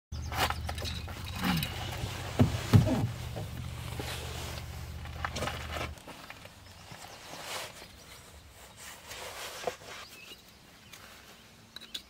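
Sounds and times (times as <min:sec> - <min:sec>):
clothing rustling: 0:01.7 - 0:10.2.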